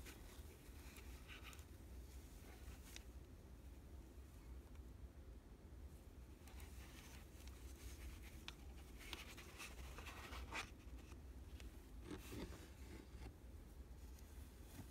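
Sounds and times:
low steady hum: 0:00.0 - 0:14.9
gloved hands rustling: 0:06.2 - 0:14.9.

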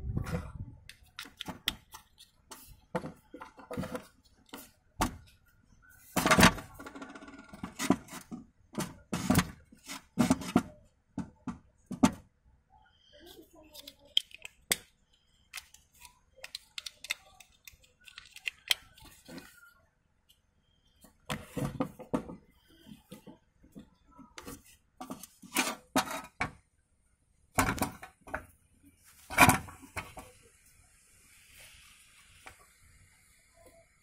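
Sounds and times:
plastic blocks clicking and clattering: 0:13.6 - 0:19.6.

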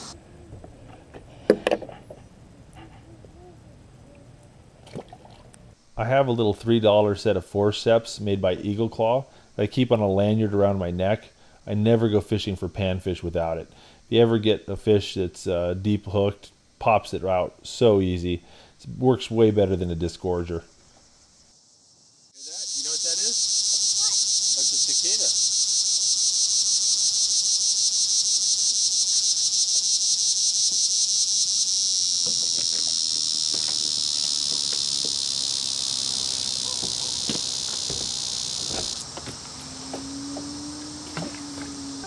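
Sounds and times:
high-pitched insect buzz: 0:21.2 - 0:42.0.

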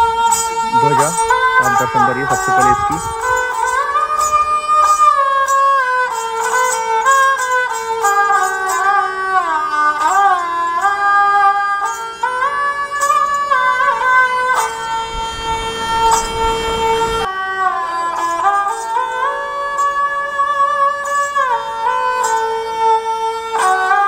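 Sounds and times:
traditional indian instrumental music: 0:00.0 - 0:24.0.

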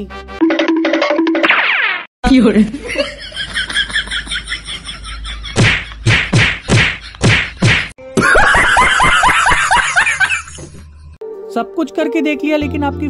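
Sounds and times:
hand whacking a back: 0:05.6 - 0:07.9.

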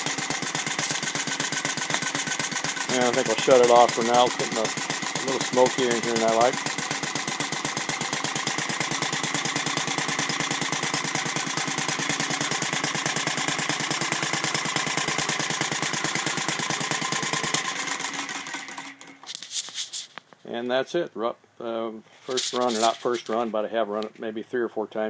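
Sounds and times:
model engine running: 0:00.0 - 0:19.2.

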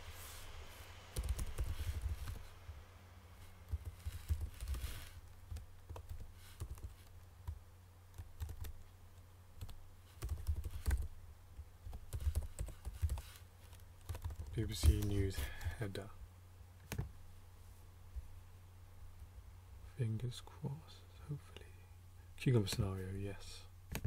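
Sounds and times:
typing on computer keyboard: 0:01.2 - 0:02.0, 0:05.5 - 0:07.1, 0:08.2 - 0:08.8, 0:09.6 - 0:11.1, 0:11.9 - 0:13.3, 0:14.0 - 0:15.0.

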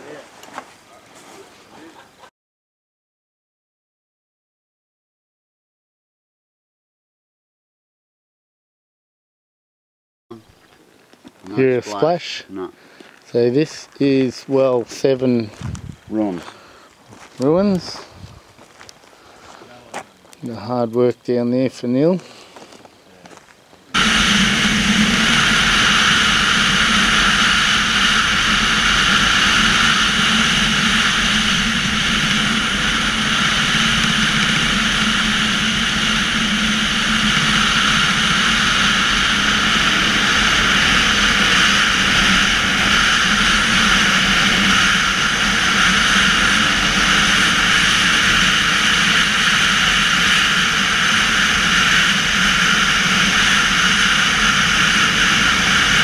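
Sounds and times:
dirt bike engine running: 0:23.9 - 0:56.0.

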